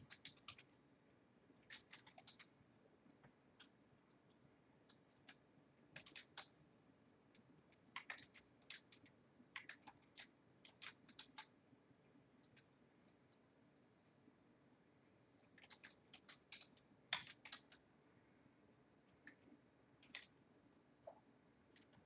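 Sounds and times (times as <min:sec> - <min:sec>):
computer keyboard keystrokes: 0:00.0 - 0:00.7, 0:01.6 - 0:02.5, 0:06.0 - 0:06.5, 0:07.9 - 0:11.5, 0:15.5 - 0:17.8, 0:20.0 - 0:20.3.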